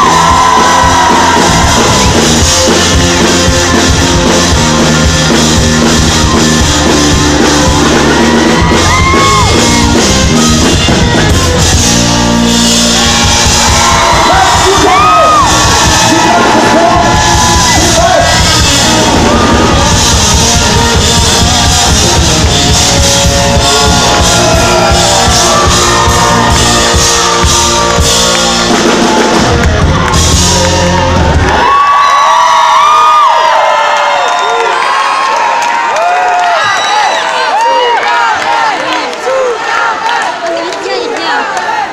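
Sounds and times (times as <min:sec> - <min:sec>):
live rock band playing: 0:00.0 - 0:32.0
crowd cheering and whooping: 0:00.0 - 0:41.9
person shouting and singing: 0:13.9 - 0:27.6.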